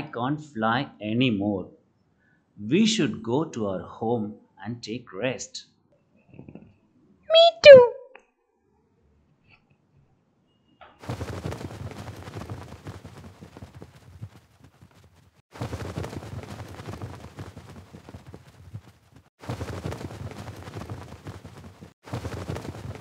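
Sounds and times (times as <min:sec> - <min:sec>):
wings flapping: 0:11.0 - 0:23.0.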